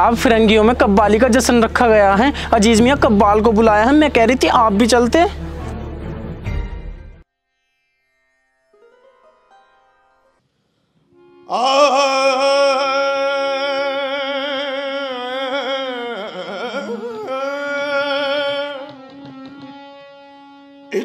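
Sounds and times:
harmonium: 0.0 - 5.9, 15.5 - 21.0
person singing with vibrato: 11.2 - 19.8.

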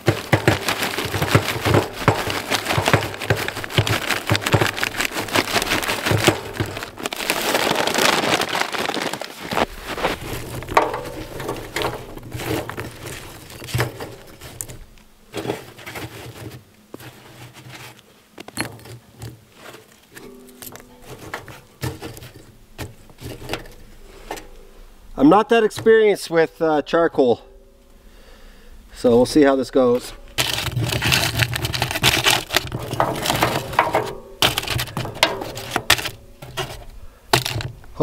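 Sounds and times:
charcoal pouring into metal drum: 0.0 - 17.9, 30.1 - 38.0
clicks and knocks of briquettes: 0.0 - 24.7, 30.0 - 38.0.

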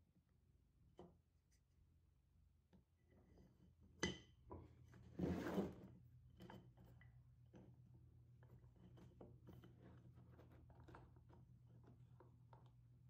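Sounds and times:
wood scraping on bench: 5.1 - 5.9.

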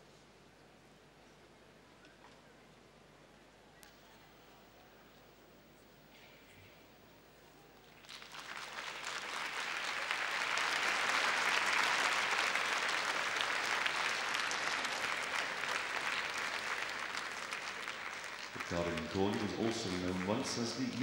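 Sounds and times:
audience applauding: 7.9 - 21.0.

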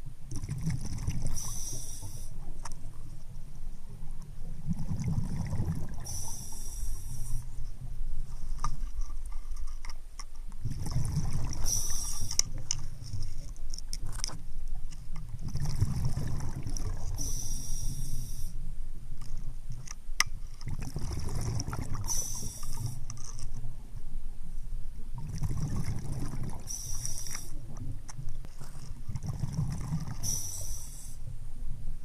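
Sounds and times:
diver breathing underwater: 1.2 - 2.4, 5.4 - 7.6, 11.4 - 12.5, 17.1 - 18.6, 22.0 - 23.1, 29.4 - 31.2.

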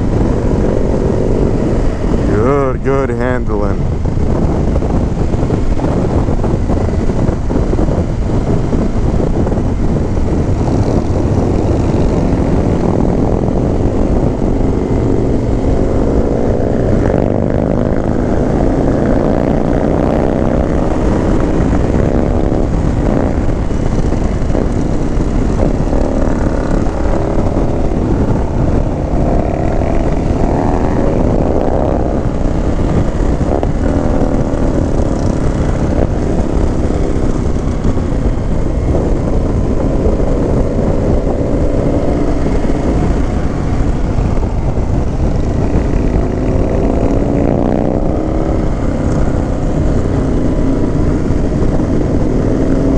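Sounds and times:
motorcycle engine running: 0.0 - 52.9
wind noise on microphone: 0.0 - 52.9.

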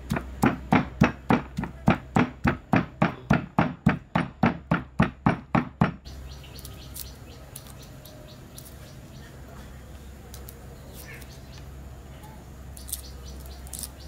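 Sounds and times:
cleaver chopping meat on wood: 0.0 - 6.1.

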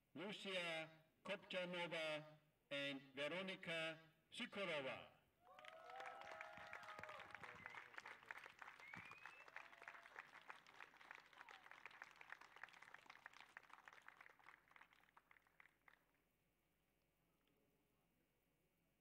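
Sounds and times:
audience cheering: 5.5 - 10.5
audience applauding: 5.5 - 16.1.

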